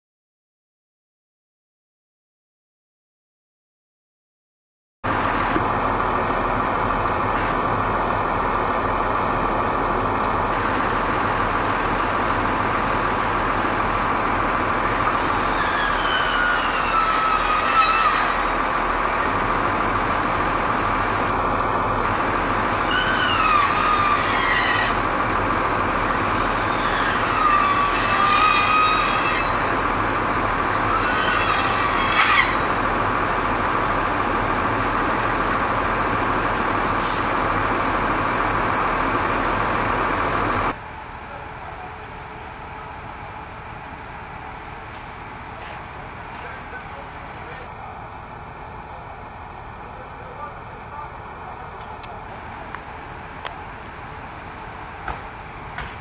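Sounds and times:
truck engine whining: 5.0s - 56.0s
power saw cutting wood: 10.5s - 21.3s, 22.0s - 33.5s.

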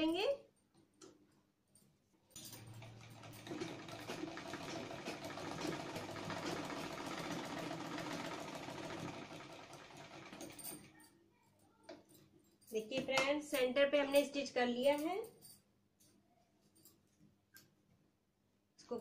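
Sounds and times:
sewing machine stitching: 2.6s - 10.9s.

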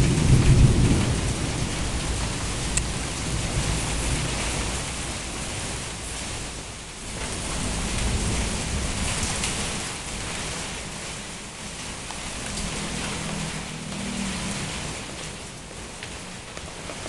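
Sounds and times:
gusty wind through leaves: 0.0s - 17.0s.

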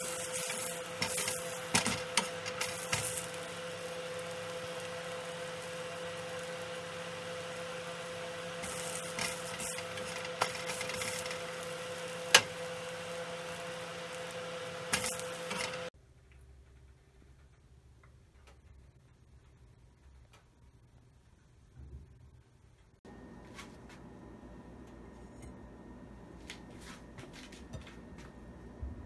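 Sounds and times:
patty sizzling in oil: 0.0s - 15.9s
spatula scraping pan: 0.0s - 15.9s.

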